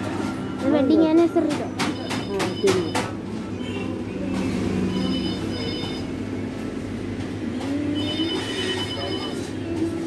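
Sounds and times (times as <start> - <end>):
high electronic ringing tone: 4.8 - 6.2, 8.0 - 9.6.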